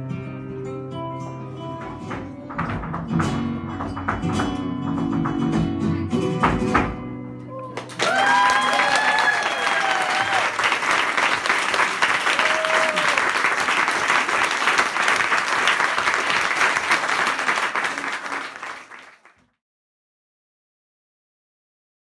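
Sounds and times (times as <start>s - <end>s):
audience applauding: 7.6s - 19.5s.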